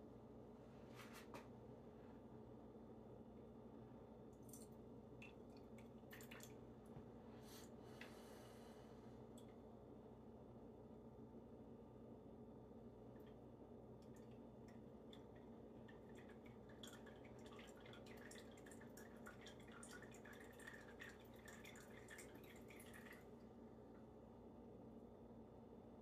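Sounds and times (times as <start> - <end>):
grease dripping into a cup: 4.4 - 6.6, 14.0 - 23.4.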